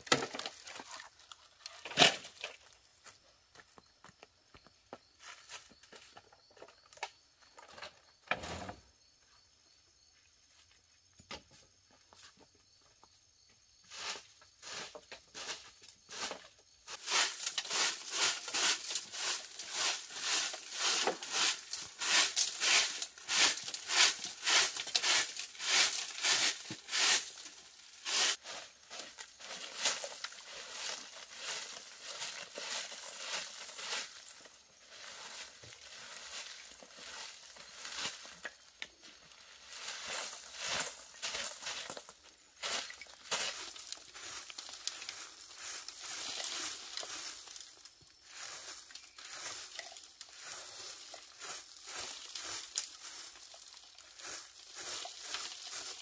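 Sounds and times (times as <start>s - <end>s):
straw broom sweeping dry leaves: 13.8s - 56.0s.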